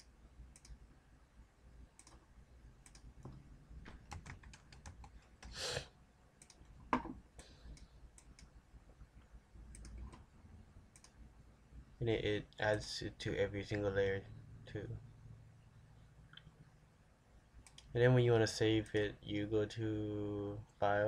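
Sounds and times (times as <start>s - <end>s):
mouse clicks: 0.0s - 0.8s, 2.0s - 2.2s, 6.4s - 6.7s, 9.7s - 10.2s, 10.9s - 11.2s
keyboard typing: 2.8s - 5.6s, 9.7s - 10.2s.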